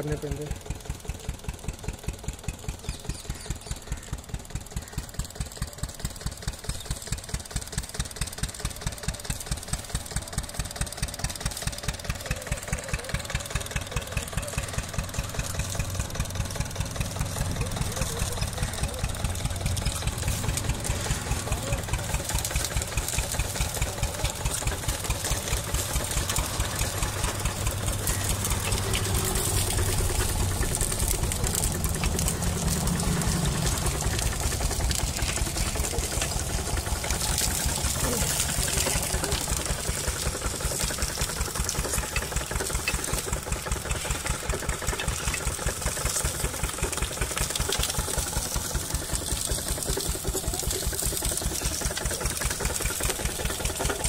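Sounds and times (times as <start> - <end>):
sugarcane crusher engine knocking: 0.0 - 54.0.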